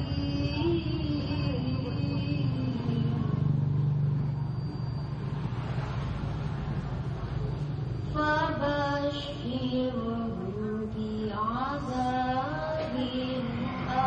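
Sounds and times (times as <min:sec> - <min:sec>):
girl chanting recitation into microphone: 0:00.0 - 0:03.7, 0:08.0 - 0:14.0.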